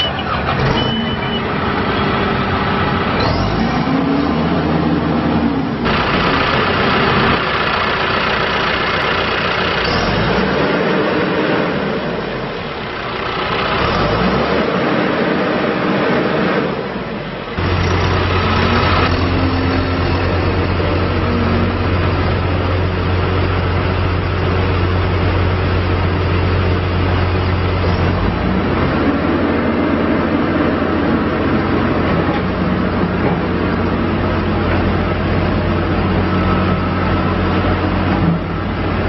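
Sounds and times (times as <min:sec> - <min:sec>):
diesel engine running: 0:00.0 - 0:39.0.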